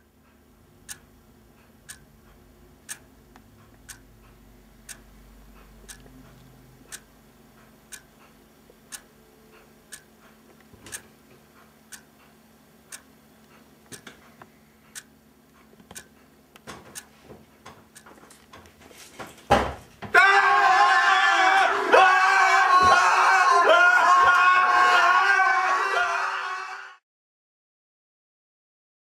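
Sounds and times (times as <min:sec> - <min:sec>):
clock ticking: 0:00.0 - 0:18.2.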